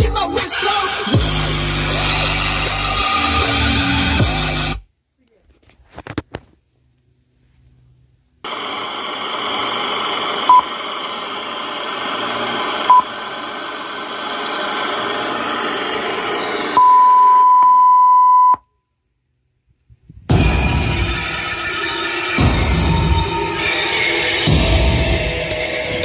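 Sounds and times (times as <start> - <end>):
heart monitor beeps: 16.8 - 18.6.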